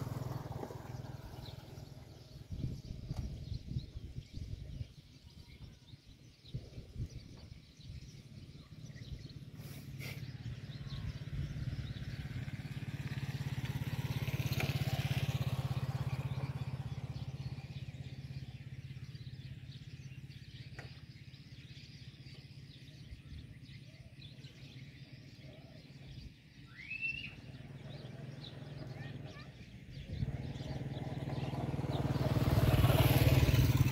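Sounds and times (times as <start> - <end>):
vehicle engine hum passing: 0.0 - 3.8, 8.3 - 21.6, 24.5 - 33.9.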